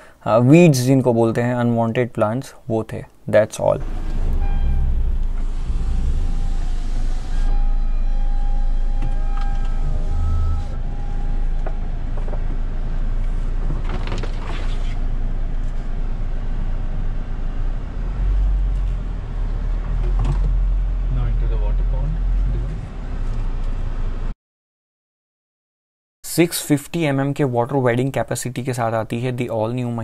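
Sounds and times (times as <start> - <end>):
thin high tone: 3.8 - 11.5
suv engine low rumble: 3.8 - 24.3.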